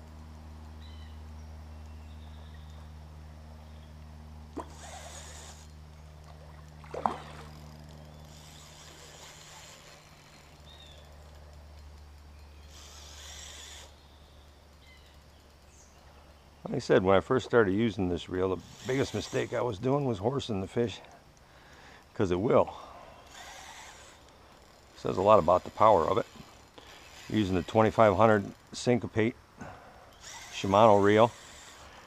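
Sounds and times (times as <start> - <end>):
low hum: 0.0 - 32.0
fish splashing: 4.5 - 10.5
electric fishing reel winding: 4.6 - 5.8, 7.1 - 15.7, 18.5 - 19.7, 23.2 - 28.8, 30.1 - 32.0.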